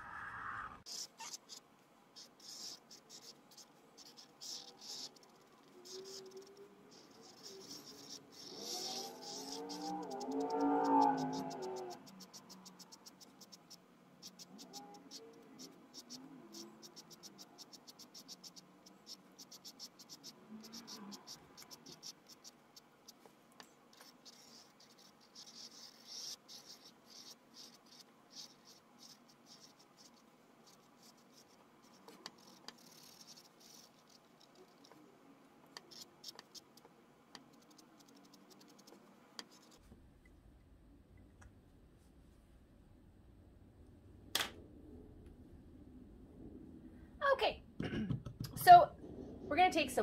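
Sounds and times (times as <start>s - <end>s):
marker scratching on canvas: 0.9s - 35.0s, 35.7s - 39.9s.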